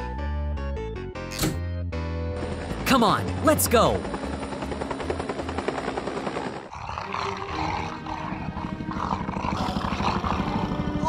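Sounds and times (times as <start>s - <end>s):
helicopter rotor chopping: 2.4s - 11.0s
lion growling and roaring: 6.7s - 11.0s.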